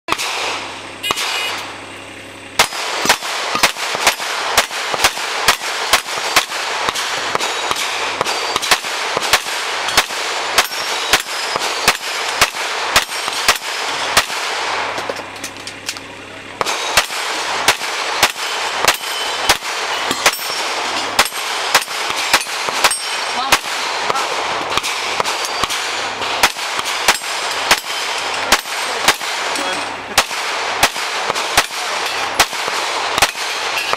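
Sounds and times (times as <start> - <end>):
rapid pistol fire: 0.1 - 1.7, 2.5 - 15.0, 16.6 - 33.9
steel plates clanging: 18.0 - 30.1.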